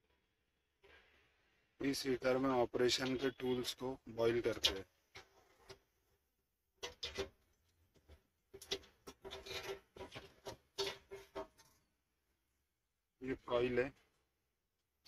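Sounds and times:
metal coil scraping steel tub: 0:08.6 - 0:11.8.

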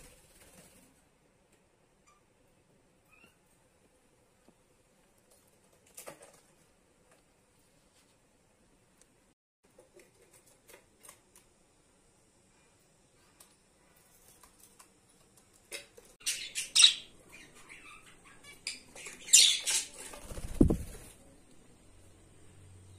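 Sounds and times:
wings flapping: 0:00.0 - 0:01.0, 0:19.6 - 0:21.2
birds tapping and scratching: 0:05.2 - 0:06.7, 0:09.7 - 0:11.5, 0:13.2 - 0:16.8
budgies squawking: 0:16.2 - 0:20.1.

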